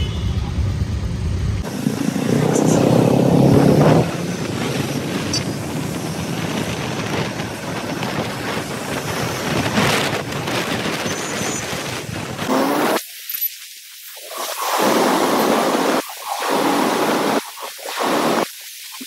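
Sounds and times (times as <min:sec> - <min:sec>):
motorcycle engine: 0:00.0 - 0:08.7
wind on microphone: 0:01.5 - 0:12.9.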